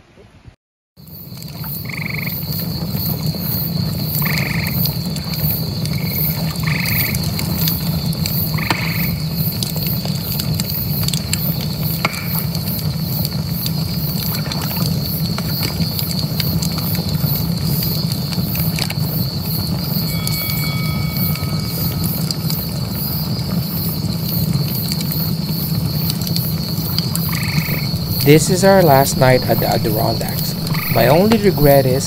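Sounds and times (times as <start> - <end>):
night insects trilling: 1.0 - 32.0
bonfire crackling and popping: 1.1 - 32.0
frog calls: 1.7 - 2.4, 4.1 - 4.9, 6.0 - 7.2, 8.4 - 9.3, 26.7 - 32.0.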